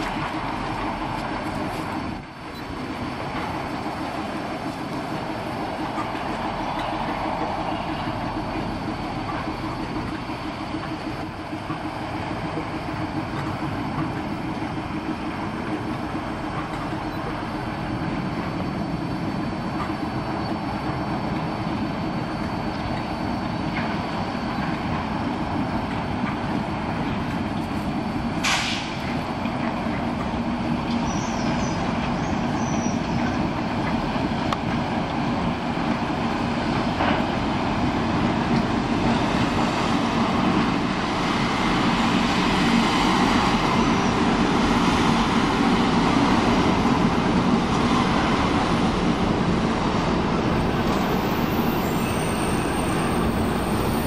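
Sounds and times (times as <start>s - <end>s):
diesel locomotive engine drone: 0.0s - 54.0s
short hiss of air: 28.4s - 29.0s.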